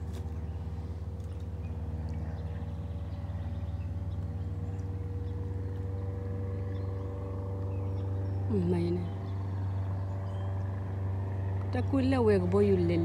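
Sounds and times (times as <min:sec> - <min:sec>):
boat motor droning: 0:00.0 - 0:13.0.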